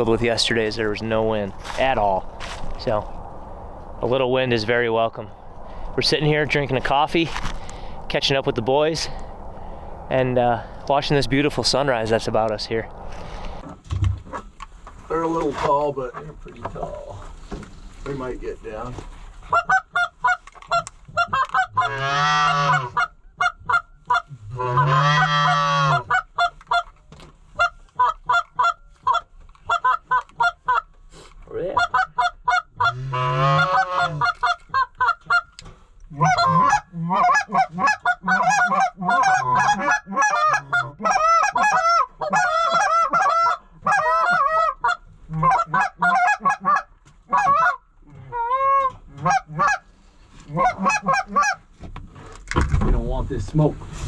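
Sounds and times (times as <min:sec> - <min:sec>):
goose call clucks and honks: 0:19.4 - 0:27.0, 0:27.6 - 0:30.9, 0:31.5 - 0:51.7.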